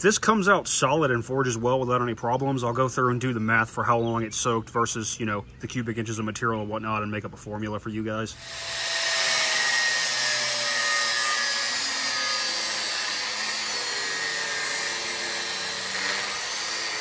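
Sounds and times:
angle grinder cutting steel: 0:08.4 - 0:17.0.

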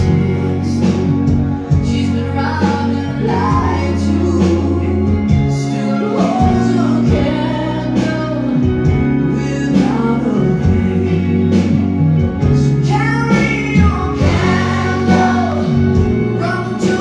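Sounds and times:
bass and keyboard chords: 0:00.0 - 0:17.0
gospel singing voices: 0:01.8 - 0:08.6, 0:12.8 - 0:17.0.

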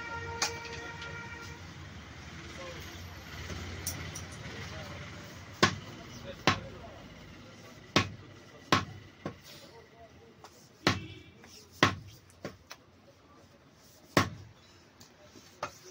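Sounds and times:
cleaver chopping meat on wood: 0:05.6 - 0:06.7, 0:07.9 - 0:09.4, 0:10.8 - 0:11.2, 0:11.8 - 0:12.1, 0:14.1 - 0:14.4.

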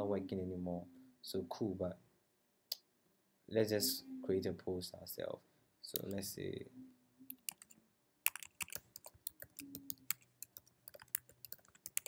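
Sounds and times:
computer keyboard typing: 0:07.3 - 0:12.0.

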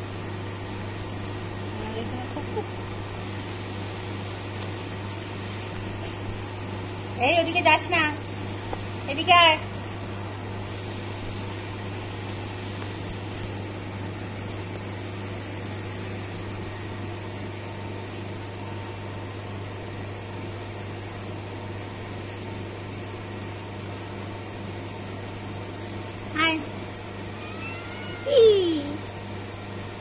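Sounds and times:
steady low hum: 0:00.0 - 0:30.0
constant hiss: 0:02.4 - 0:06.3.

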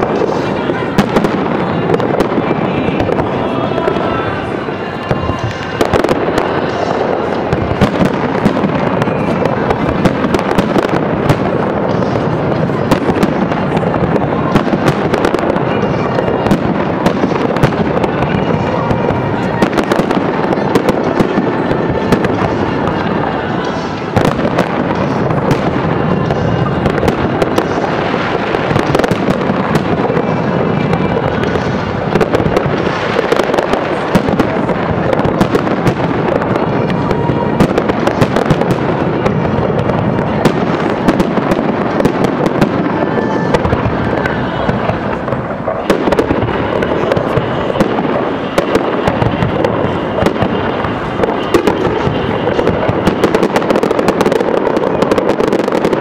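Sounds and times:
fireworks bangs and crackles: 0:00.0 - 0:56.0.

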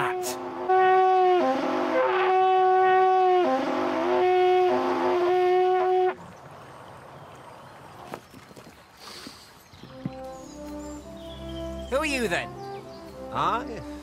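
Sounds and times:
trumpet playing a fanfare: 0:00.0 - 0:06.2.

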